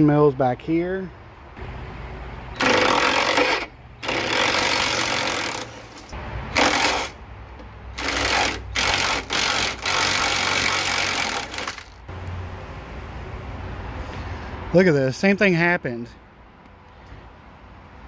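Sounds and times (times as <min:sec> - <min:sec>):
impact driver bursts: 0:02.6 - 0:07.2, 0:08.0 - 0:12.0.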